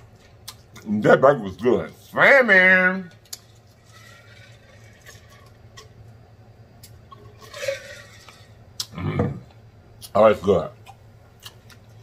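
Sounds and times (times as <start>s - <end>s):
person swallowing: 8.8s - 9.6s.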